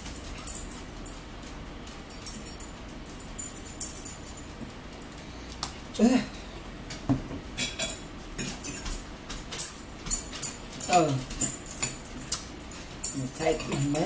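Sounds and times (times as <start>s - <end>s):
cutlery and dishes clinking: 7.6s - 14.0s.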